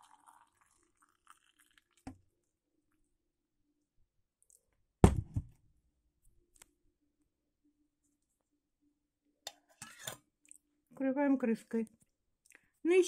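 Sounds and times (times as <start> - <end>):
hard knock against table: 5.0 - 5.5.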